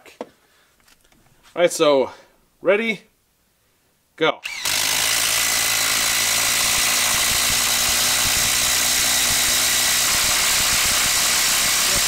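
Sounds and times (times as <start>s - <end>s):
impact driver hammering screw into wood: 4.5s - 12.0s.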